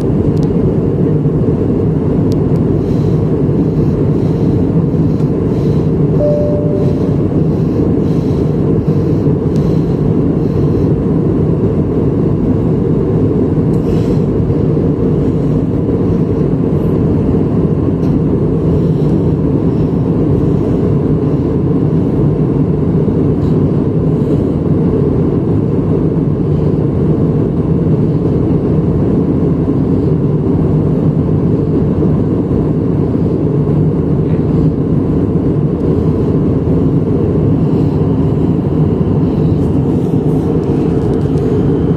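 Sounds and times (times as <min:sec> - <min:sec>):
airflow over fuselage: 0:00.0 - 0:41.9
jet engines droning: 0:00.0 - 0:41.9.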